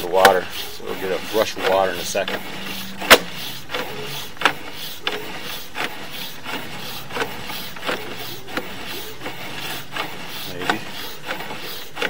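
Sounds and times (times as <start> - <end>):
cable rubbing and scraping: 0.0 - 12.0
sharp click: 3.0 - 5.2.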